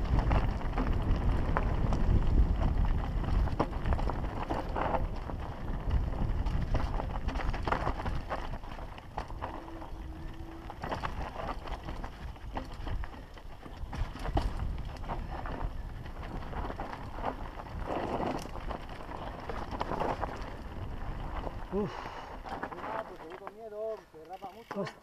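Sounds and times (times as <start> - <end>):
continuous low rumble: 0.0 - 24.2
bike rattling and clicking: 0.0 - 25.0
tyres crunching over stones: 0.0 - 25.0.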